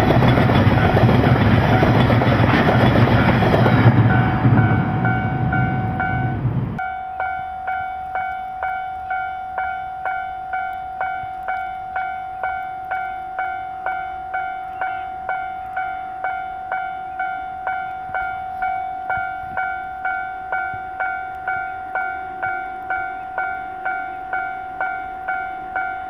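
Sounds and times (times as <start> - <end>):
level-crossing warning bell: 0.0 - 26.0
low train rumble: 0.0 - 26.0.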